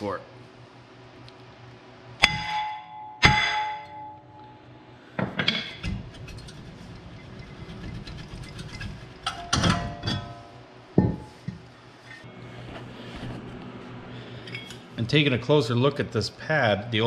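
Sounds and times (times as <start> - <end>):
metal clanks and rattling: 5.3 - 11.6
ringing metal clatter: 5.5 - 11.3.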